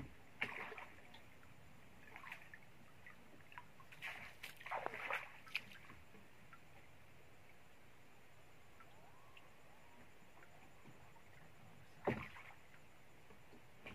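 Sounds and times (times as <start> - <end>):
water splashing and sloshing: 0.0 - 7.6, 8.6 - 13.9.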